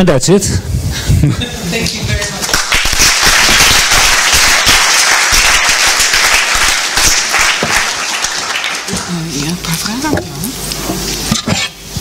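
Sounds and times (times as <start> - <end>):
audience applauding: 2.2 - 9.2.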